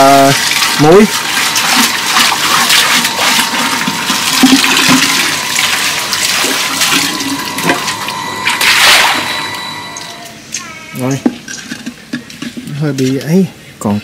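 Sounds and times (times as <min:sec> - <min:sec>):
water spilling onto concrete: 0:00.0 - 0:07.6
water sloshing in a jar: 0:00.0 - 0:09.6.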